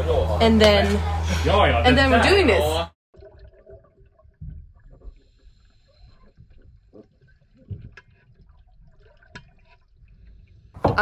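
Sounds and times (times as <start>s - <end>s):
dull underwater thumps: 3.2s - 5.5s, 6.3s - 11.0s.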